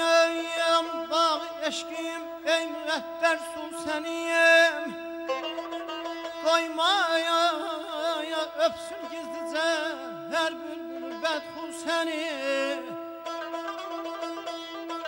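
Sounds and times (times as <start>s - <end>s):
man singing with warbling ornaments: 0.0s - 13.8s.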